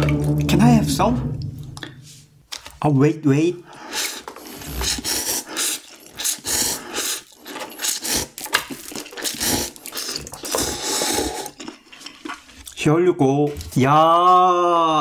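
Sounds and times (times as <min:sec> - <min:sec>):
noodles slurped: 0:03.8 - 0:12.8.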